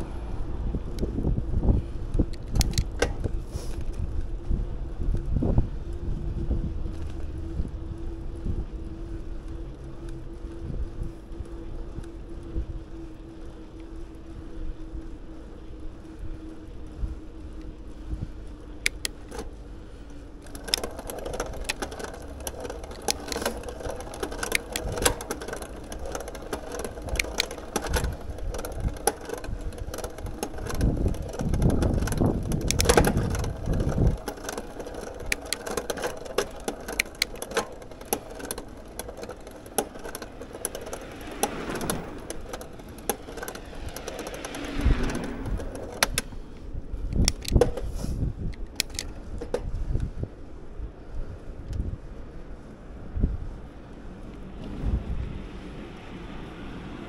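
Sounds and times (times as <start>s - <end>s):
bike clicks and rattles: 0.0s - 56.9s
bicycle ride hum: 0.0s - 57.0s
rush of low noise: 39.7s - 47.1s.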